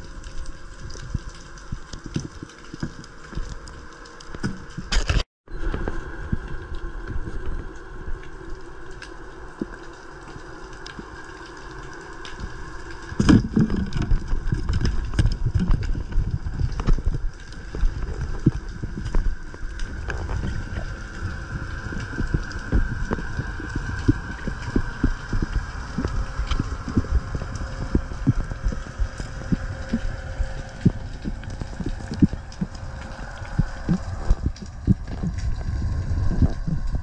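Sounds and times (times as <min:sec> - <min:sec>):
underwater rushing rumble: 0:10.5 - 0:37.0.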